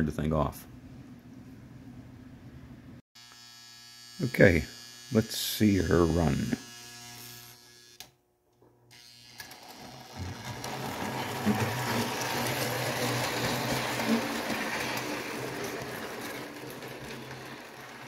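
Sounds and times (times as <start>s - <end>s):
model train motor whirring: 6.0s - 8.1s, 8.9s - 18.0s.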